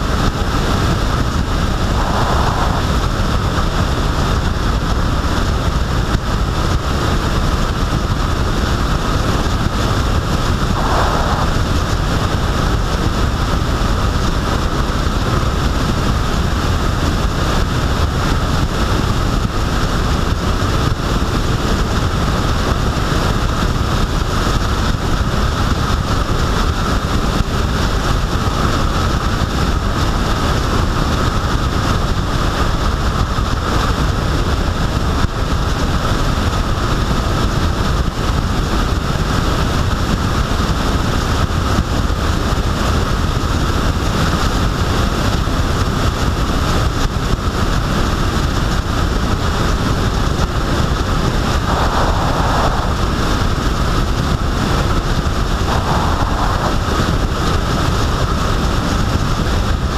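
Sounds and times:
tyre and road noise: 0.0 - 6.4, 48.6 - 59.9
wind over microphone: 0.0 - 59.9.

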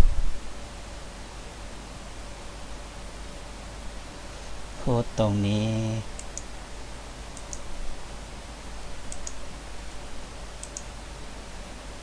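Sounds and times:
faint steady hiss: 0.0 - 12.0
computer mouse clicks: 6.2 - 6.5, 7.4 - 7.7, 9.1 - 9.4, 10.6 - 11.0.

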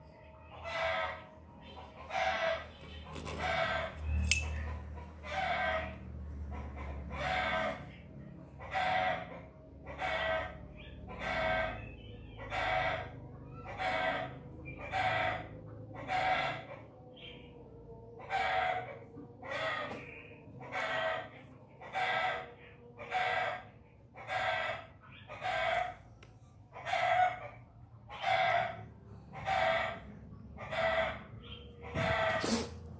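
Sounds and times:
animal calling: 0.5 - 17.6, 26.7 - 32.9.

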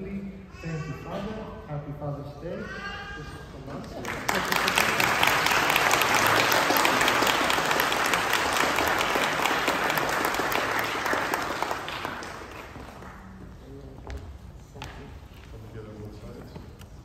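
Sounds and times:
crowd applauding: 4.0 - 13.3.

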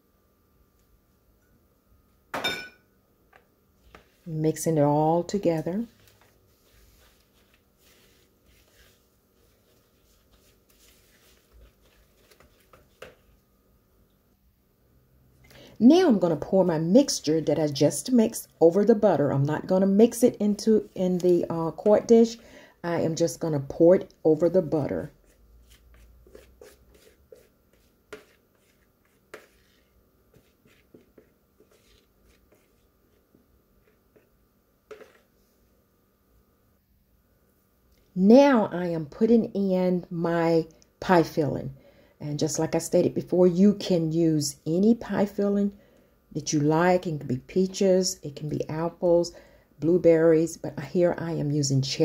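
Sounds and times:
whisk scraping in plastic bowl: 5.4 - 13.4, 24.8 - 35.5.

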